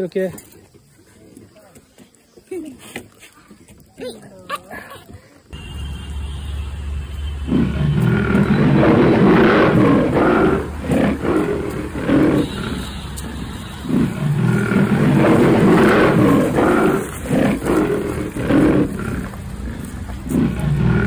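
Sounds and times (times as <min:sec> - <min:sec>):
big cat roaring: 0:07.5 - 0:12.8, 0:13.9 - 0:21.0.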